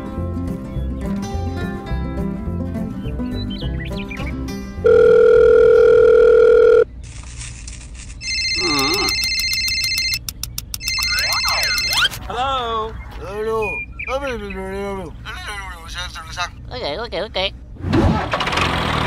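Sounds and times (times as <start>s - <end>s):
background music: 0.0s - 5.7s
telephone ringing: 4.8s - 6.9s, 8.2s - 12.1s
loud steady beep tone: 10.8s - 12.1s.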